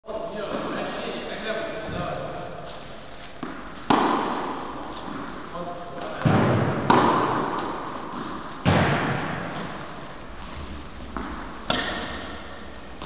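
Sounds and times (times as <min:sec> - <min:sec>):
tennis balls struck with rackets: 0:03.4 - 0:05.4, 0:06.0 - 0:13.0.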